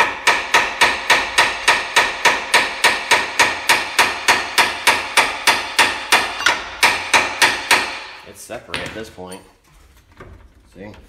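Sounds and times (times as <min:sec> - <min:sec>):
hammer striking metal: 0:00.0 - 0:08.2.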